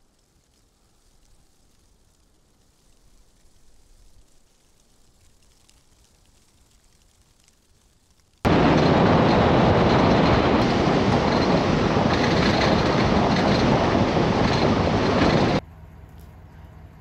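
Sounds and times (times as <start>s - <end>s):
truck rumbling on dirt road: 8.5s - 15.6s.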